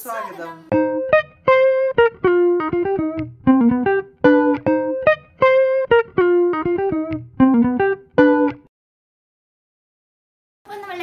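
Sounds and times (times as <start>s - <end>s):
plucked guitar-like melody: 0.7s - 8.7s.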